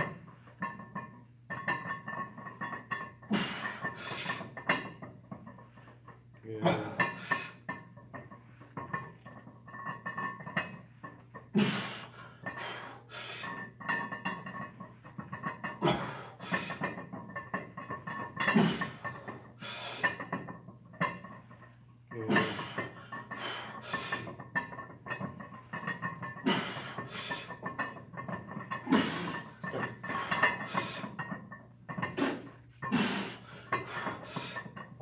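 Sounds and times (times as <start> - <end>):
person breathing heavily: 15.8 - 16.8.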